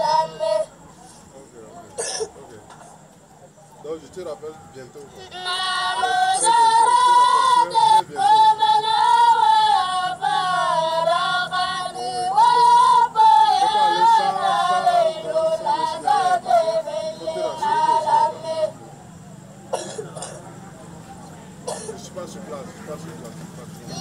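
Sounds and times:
boy singing a chant: 0:00.0 - 0:00.8, 0:05.2 - 0:18.8.

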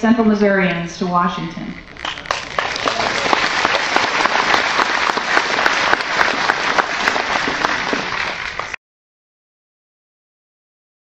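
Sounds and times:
audience applauding: 0:01.9 - 0:08.8.

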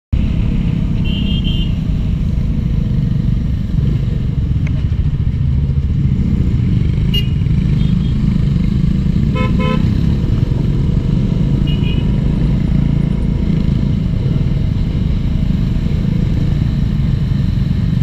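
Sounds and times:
motorcycle engine and wind rumble: 0:00.2 - 0:18.0
vehicle horn beeps: 0:01.0 - 0:01.8, 0:09.4 - 0:09.8, 0:11.7 - 0:12.1.

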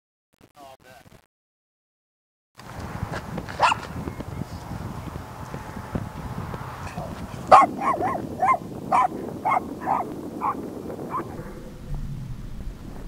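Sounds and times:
dog barking: 0:03.6 - 0:03.9, 0:07.0 - 0:11.4.

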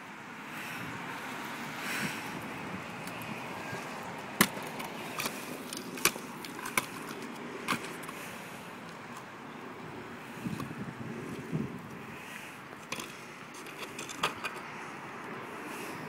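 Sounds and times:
scooter rolling over concrete: 0:12.7 - 0:14.7
scooter landing on concrete: 0:12.8 - 0:14.6.

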